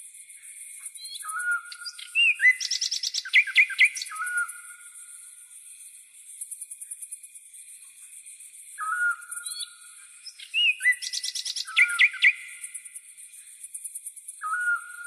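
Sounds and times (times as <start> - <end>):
crickets trilling: 0.0 - 15.0
chirping bird song: 0.5 - 5.0, 8.8 - 15.0
bird whistled call: 1.0 - 4.8, 8.8 - 12.7, 14.4 - 15.0.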